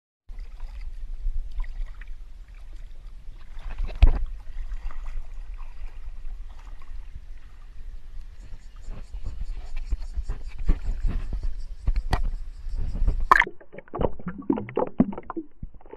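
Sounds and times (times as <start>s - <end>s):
river water splashing: 0.3s - 7.9s, 13.3s - 15.9s.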